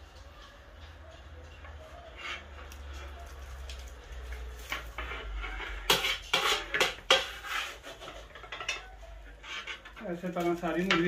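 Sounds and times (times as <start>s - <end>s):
plate scraping in a wok: 4.6s - 10.1s.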